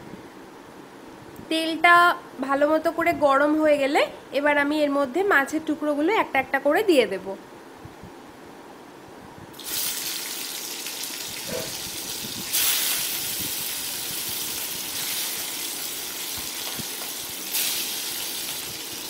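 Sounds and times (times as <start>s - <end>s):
fish sizzling in hot oil: 9.5s - 19.0s.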